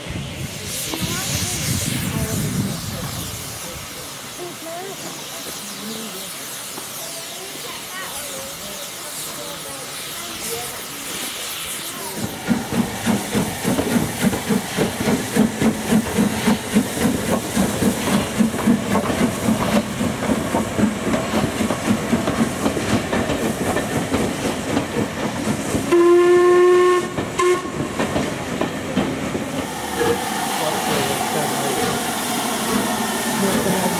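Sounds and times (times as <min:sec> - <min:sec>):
steam hissing: 0:00.0 - 0:33.9
steam locomotive exhaust beats: 0:00.0 - 0:33.9
steam whistle: 0:25.9 - 0:27.8.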